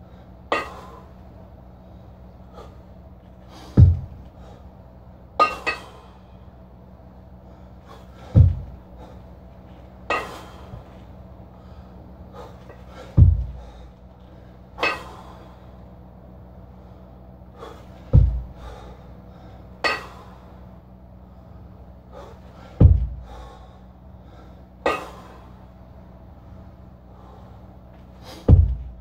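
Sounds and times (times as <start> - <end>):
heavy kettlebell thuds: 3.7 - 4.2, 8.1 - 9.0, 13.0 - 13.9, 18.0 - 18.8, 22.6 - 23.6, 28.3 - 29.0.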